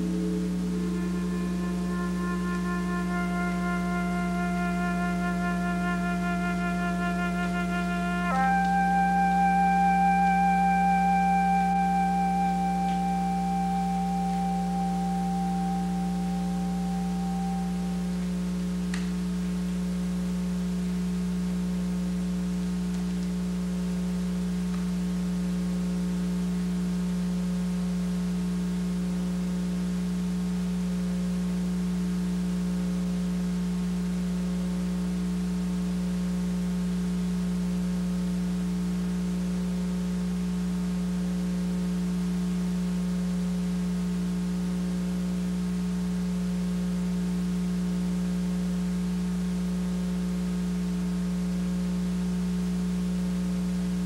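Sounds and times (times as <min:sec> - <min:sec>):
electronic drone: 0:00.0 - 0:18.5
pulsing high tone: 0:00.0 - 0:18.6.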